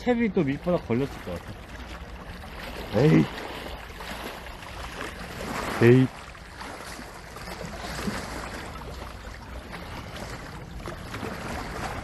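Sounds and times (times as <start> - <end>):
sea water washing: 0.0 - 12.0.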